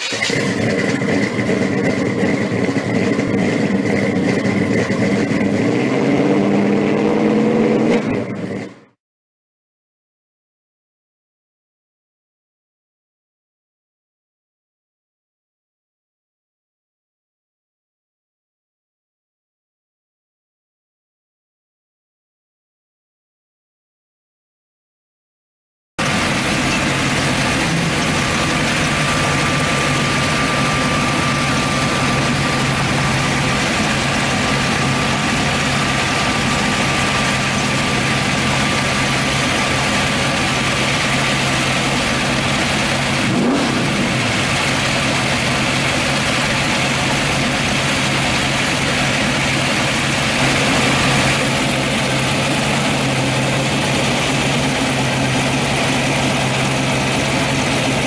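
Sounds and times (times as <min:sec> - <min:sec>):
car engine idling: 0:00.0 - 0:09.0, 0:26.0 - 0:58.0
engine revving: 0:00.0 - 0:09.0, 0:26.0 - 0:58.0.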